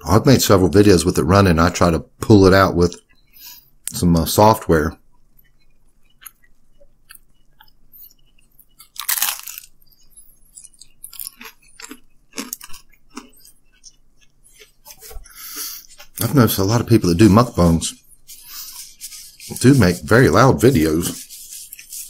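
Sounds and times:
chewing with crisp crackles: 5.0 - 16.3
pizza crust crunching: 7.1 - 17.2.

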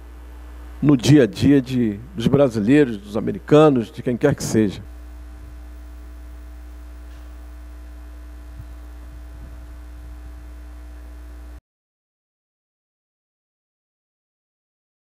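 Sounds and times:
electrical mains hum: 0.0 - 11.6.

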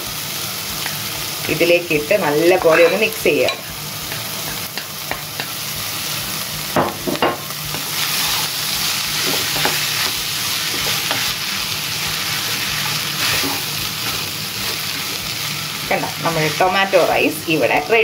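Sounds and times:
rice sizzling in a pan: 0.0 - 18.0
wooden spoon scraping a pan: 7.8 - 8.6, 12.1 - 15.1, 16.4 - 17.8.

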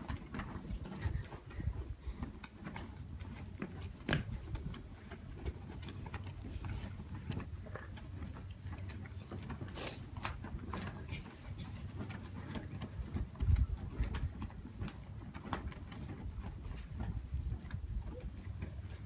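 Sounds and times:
wind on microphone: 0.0 - 2.4, 13.0 - 14.9, 15.6 - 19.0.

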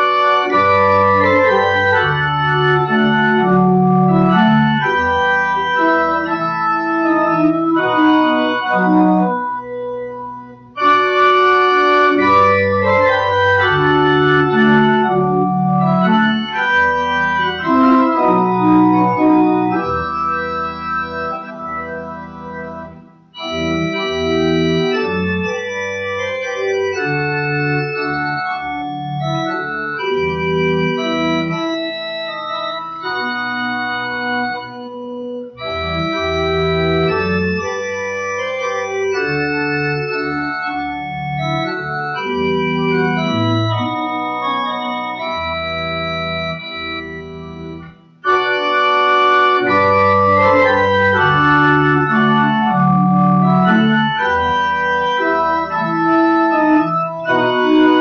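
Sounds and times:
pipe organ chords: 0.0 - 58.0.

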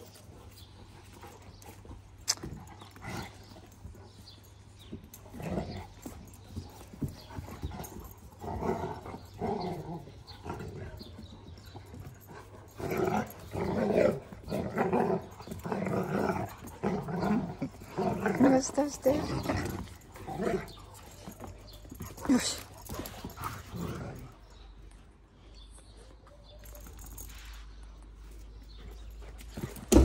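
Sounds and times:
puppies barking and growling: 5.0 - 24.5.

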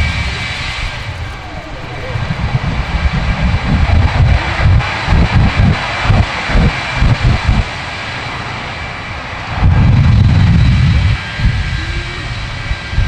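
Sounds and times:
jet engines hissing: 0.0 - 13.0
pyrotechnic booms: 2.2 - 11.6.

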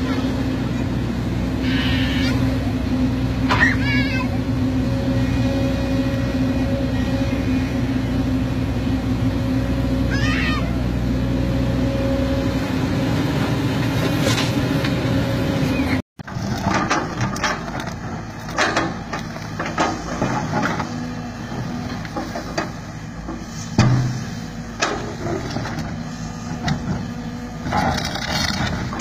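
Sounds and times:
excavator diesel engine running: 0.0 - 29.0
excavator bucket scraping rocky ground: 13.3 - 15.0, 16.2 - 29.0.

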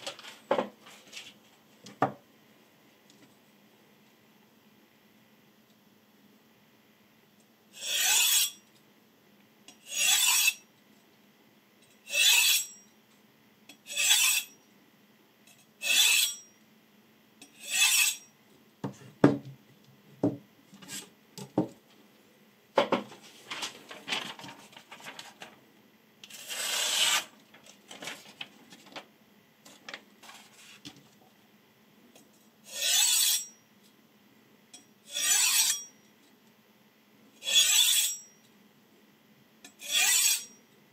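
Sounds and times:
knife scraping on honing rod: 7.8 - 8.6, 9.7 - 10.7, 12.0 - 12.8, 13.8 - 14.6, 15.5 - 16.5, 17.4 - 18.3, 26.3 - 27.3, 32.7 - 33.6, 35.1 - 35.9, 37.4 - 38.4, 39.7 - 40.6.

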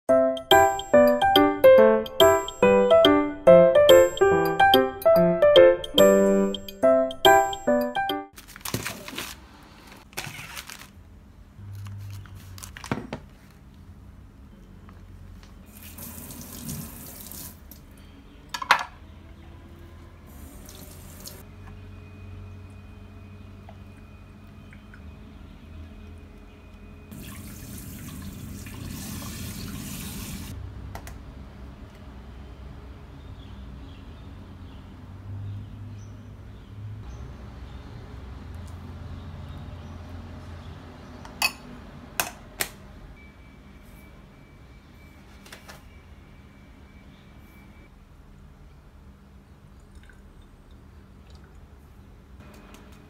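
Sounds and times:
tap water running into bowl: 27.1 - 30.5.

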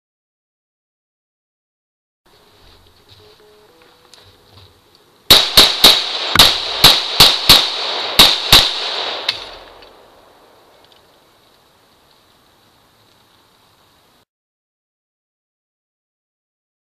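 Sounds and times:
gunshots with echo: 5.3 - 10.1.

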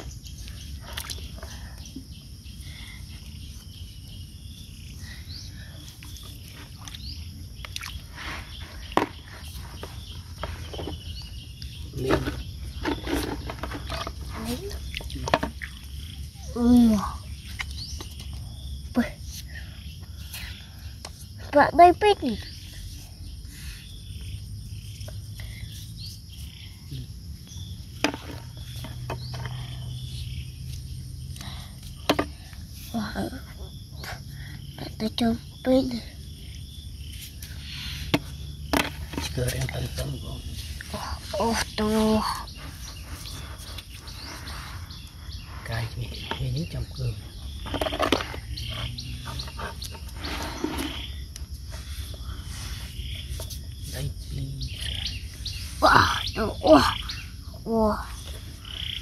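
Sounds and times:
faint chirps: 0.0 - 59.0
sharp knocks and handling noises: 12.0 - 14.4, 15.0 - 15.8, 27.9 - 29.6, 32.0 - 32.4, 38.0 - 39.8, 47.5 - 51.0.

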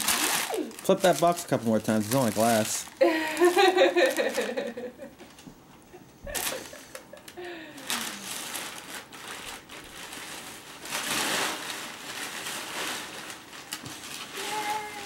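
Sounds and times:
bag being rummaged through: 0.0 - 4.6
gift wrapping crinkling: 0.0 - 5.4, 6.2 - 15.0.

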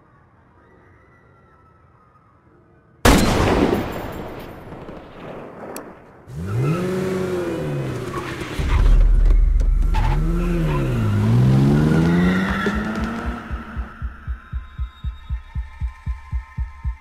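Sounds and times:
rifle shot echoing: 3.1 - 6.3
van engine revving: 6.3 - 14.0.

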